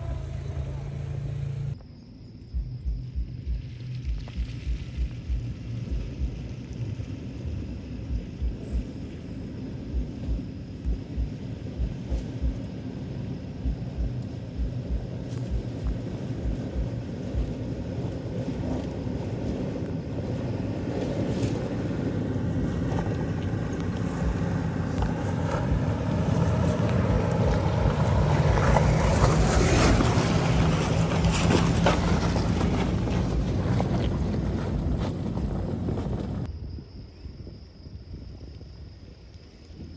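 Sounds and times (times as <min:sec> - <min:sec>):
engine running at low revs: 0:00.0 - 0:36.5
wind buffeting microphone: 0:02.6 - 0:39.9
tyres crunching over gravel: 0:14.7 - 0:36.5.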